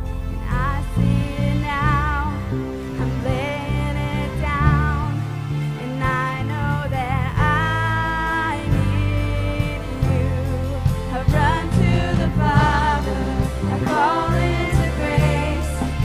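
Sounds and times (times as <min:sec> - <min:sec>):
bass: 0:00.0 - 0:16.0
woman singing: 0:00.4 - 0:16.0
drums: 0:05.9 - 0:16.0.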